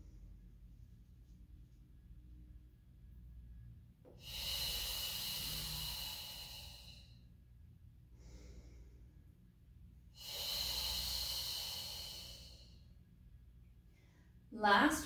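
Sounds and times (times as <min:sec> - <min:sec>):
woman breathing hard: 0:04.1 - 0:07.3, 0:08.1 - 0:09.5, 0:10.1 - 0:13.1.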